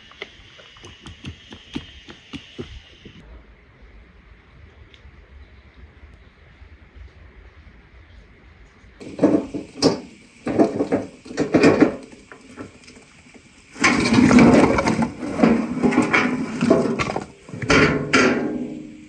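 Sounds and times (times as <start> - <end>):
logs clattering onto ground: 9.0 - 13.1, 13.7 - 18.9
wheelbarrow rattling: 9.0 - 19.0.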